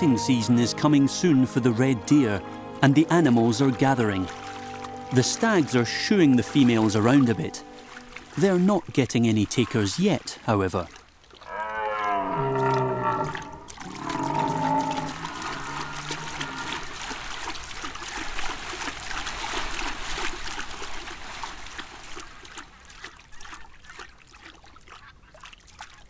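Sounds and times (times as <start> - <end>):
water splashing: 0.0 - 26.0
deer stag roaring: 11.5 - 16.8.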